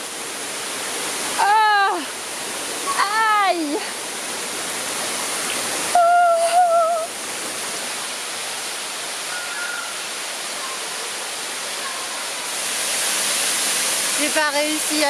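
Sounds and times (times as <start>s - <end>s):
stream water rushing: 0.0s - 15.0s
woman crying out: 6.0s - 7.1s.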